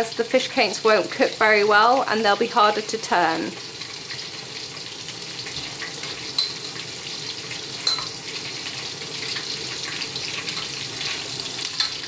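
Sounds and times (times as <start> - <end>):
deep-frying sizzle: 0.0 - 12.0
metal tongs clinking on wok: 6.4 - 6.7, 7.8 - 8.2, 11.6 - 12.0.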